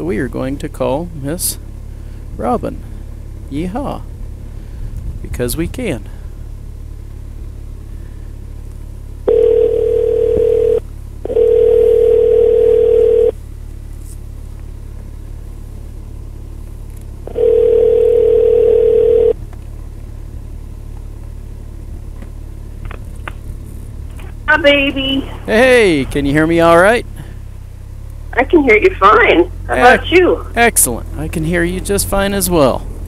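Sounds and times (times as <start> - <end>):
steady low rumble: 0.0 - 33.0
telephone ringback tone: 9.3 - 13.4, 17.3 - 19.4.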